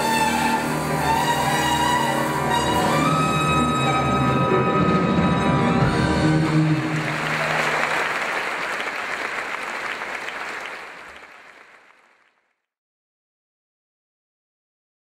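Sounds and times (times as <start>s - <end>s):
music: 0.0s - 8.4s
audience applause: 6.2s - 12.5s.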